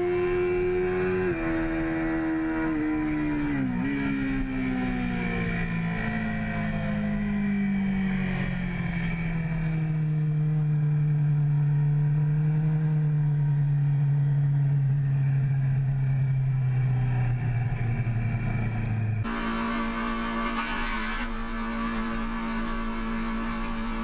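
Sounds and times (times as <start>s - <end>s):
motorcycle engine running: 10.4s - 24.0s.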